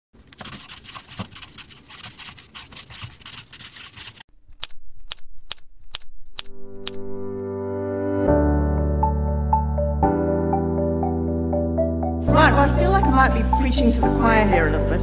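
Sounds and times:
pen scratching on paper: 0:00.2 - 0:06.0.

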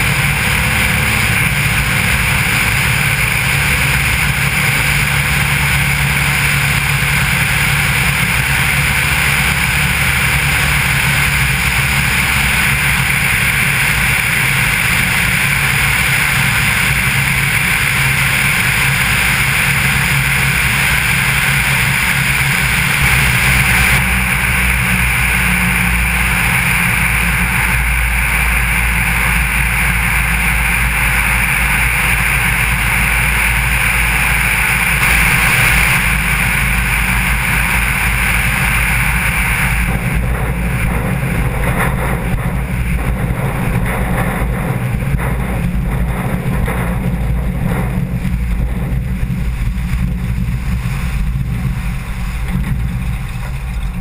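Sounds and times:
plane engine and propeller: 0:00.0 - 0:54.0
wind rushing: 0:35.0 - 0:37.2.

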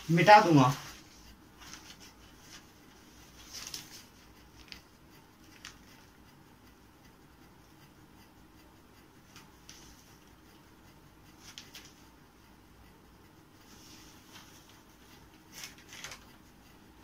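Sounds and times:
faint rustles and taps: 0:00.7 - 0:06.2, 0:09.2 - 0:10.6, 0:11.3 - 0:12.1, 0:13.6 - 0:16.4.

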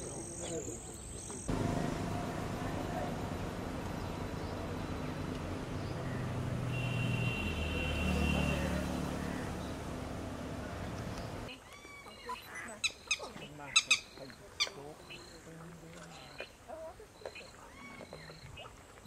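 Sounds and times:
outdoor background noise: 0:00.0 - 0:19.0
low steady engine hum: 0:01.4 - 0:11.5.

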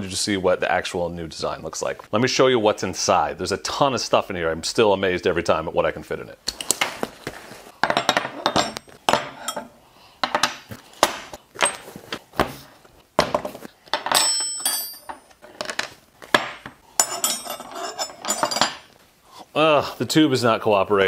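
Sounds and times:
metal tools clinking on wood: 0:07.8 - 0:10.6, 0:13.9 - 0:15.9, 0:16.5 - 0:18.9.

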